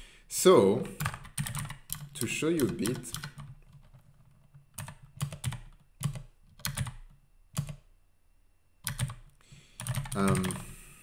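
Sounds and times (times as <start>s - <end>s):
computer keyboard typing: 1.0s - 7.9s, 8.8s - 10.7s.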